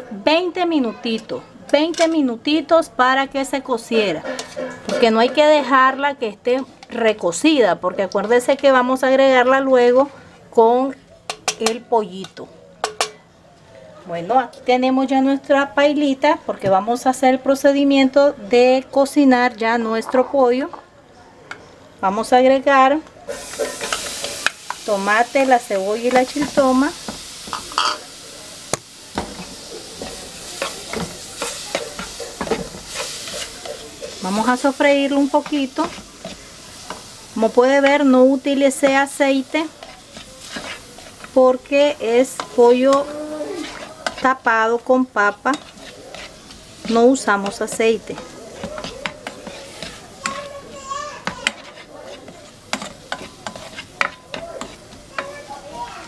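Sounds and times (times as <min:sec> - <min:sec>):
vegetables sizzling in a pot: 0:00.0 - 0:13.2, 0:22.0 - 0:56.0
spatula scraping and tapping pot: 0:03.9 - 0:05.8, 0:11.3 - 0:13.2, 0:23.3 - 0:28.0, 0:28.7 - 0:55.5.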